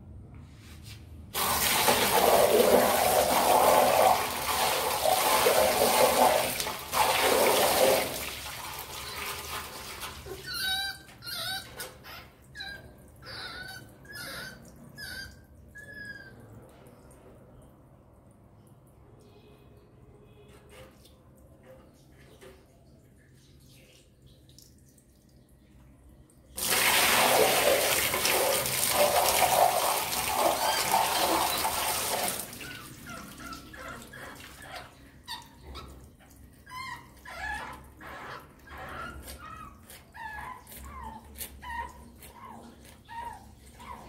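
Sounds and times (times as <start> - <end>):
rat squeaking: 10.3 - 16.4, 30.3 - 36.0.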